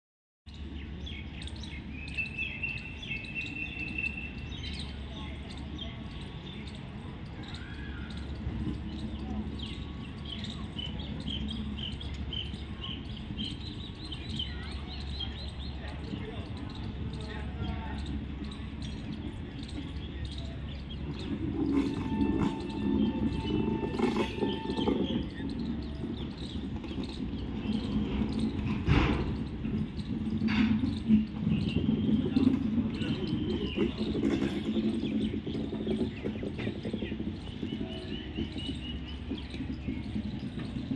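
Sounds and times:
bird chirping: 0.5 - 40.9
train wheels rumbling on rail: 0.5 - 40.9
high-pitched squeals: 21.3 - 25.7.

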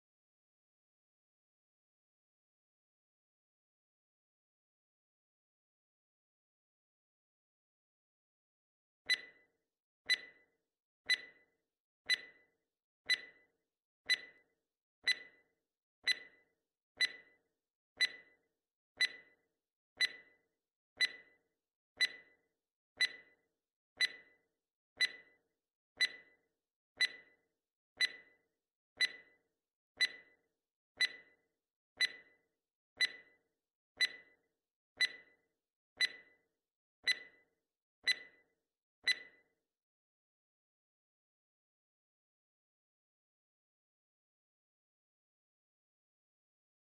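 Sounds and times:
clock-like ticking: 9.1 - 9.4, 10.1 - 10.4, 11.1 - 11.4, 12.1 - 12.4, 13.1 - 13.4, 14.1 - 14.4, 15.0 - 15.3, 16.0 - 16.4, 17.0 - 17.3, 18.0 - 18.3, 19.0 - 19.3, 20.0 - 20.3, 21.0 - 21.3, 22.0 - 22.3, 23.0 - 23.3, 24.0 - 24.3, 25.0 - 25.3, 26.0 - 26.3, 27.0 - 27.3, 28.0 - 28.3, 29.0 - 29.3, 30.0 - 30.3, 31.0 - 31.3, 32.0 - 32.3, 33.0 - 33.3, 34.0 - 34.3, 35.0 - 35.3, 36.0 - 36.3, 37.0 - 37.4, 38.0 - 38.4.

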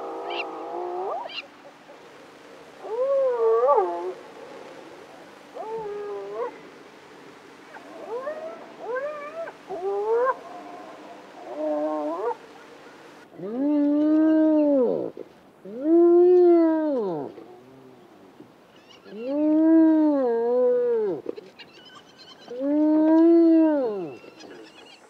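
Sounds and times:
hyena calling: 0.0 - 17.7.

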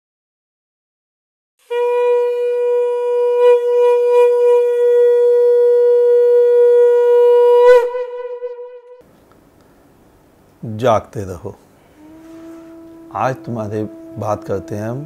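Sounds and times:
conch shell blown: 1.6 - 9.0, 11.9 - 15.0.

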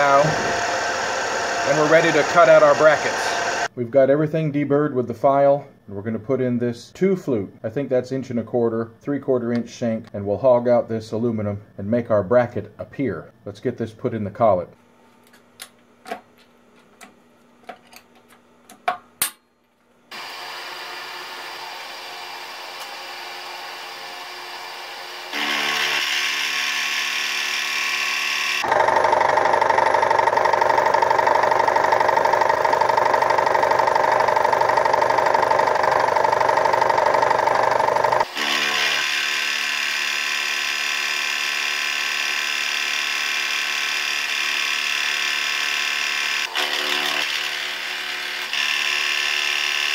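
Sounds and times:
end mill cutting aluminum: 0.0 - 3.7, 20.1 - 49.9
milling machine spindle running: 0.0 - 3.7, 20.1 - 49.9
tool clicks and knocks: 15.3 - 19.4.

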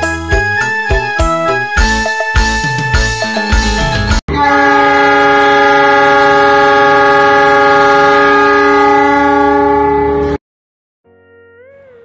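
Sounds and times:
train horn blast: 4.3 - 10.4.

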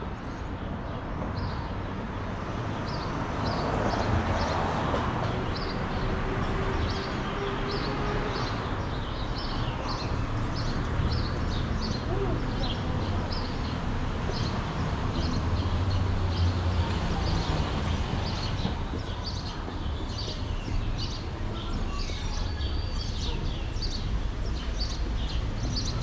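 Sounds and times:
city traffic rumble: 0.0 - 26.0
small birds chirping: 6.8 - 26.0.

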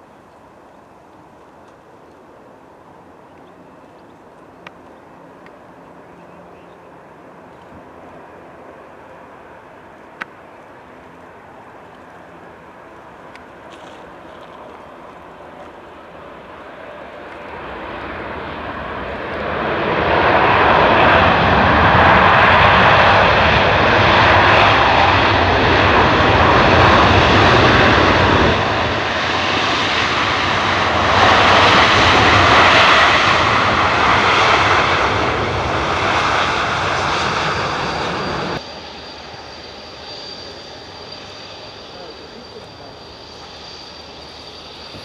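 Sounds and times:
jet engines roaring: 2.6 - 45.0.

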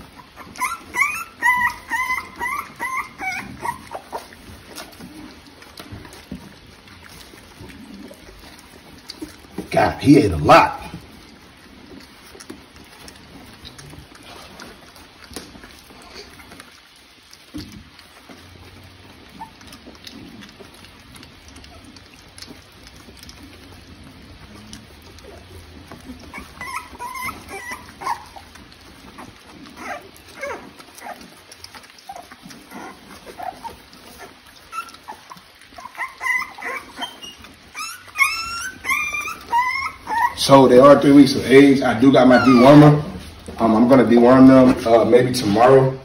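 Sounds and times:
puppy whimpers and squeaks: 0.0 - 5.1, 25.2 - 43.5
puppies lapping food: 0.0 - 46.0.

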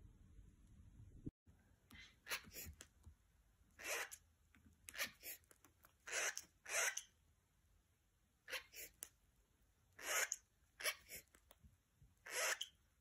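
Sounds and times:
cockatiels hissing: 2.0 - 2.8, 3.8 - 4.2, 4.9 - 7.1, 8.5 - 9.0, 10.0 - 11.4, 12.2 - 12.8.

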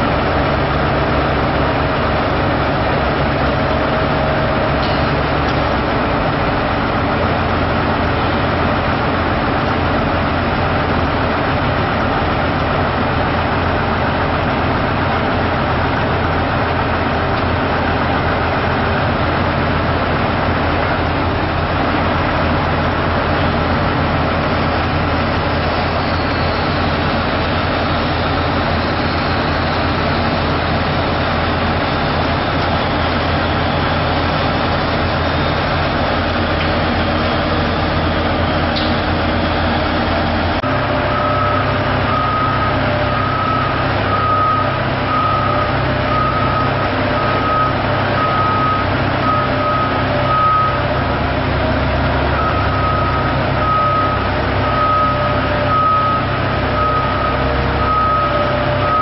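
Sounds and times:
heavy vehicle engine rumble: 0.0 - 59.0
reversing alarm beeping: 32.1 - 59.0.

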